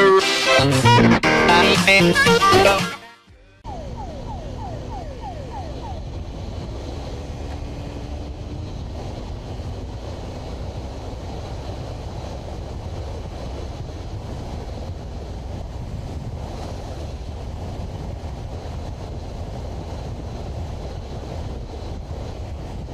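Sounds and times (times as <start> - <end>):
motorcycle engine roaring: 3.3 - 22.9
wind rush on helmet: 3.6 - 22.9.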